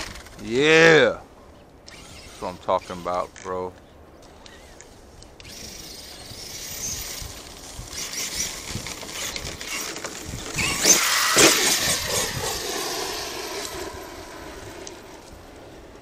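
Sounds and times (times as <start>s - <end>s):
electric motor whining: 1.9s - 3.1s, 5.4s - 15.7s.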